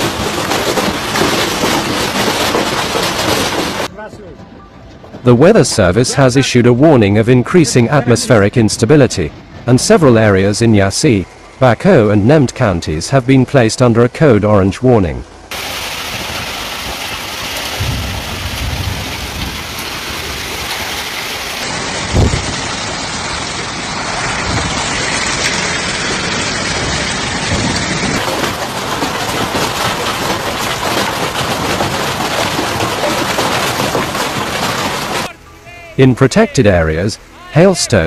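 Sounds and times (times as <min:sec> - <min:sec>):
heavy rain and hail: 0:00.0 - 0:03.9, 0:15.5 - 0:35.4
wind gusts buffeting microphone: 0:17.7 - 0:23.1
loud thump: 0:17.8 - 0:19.7.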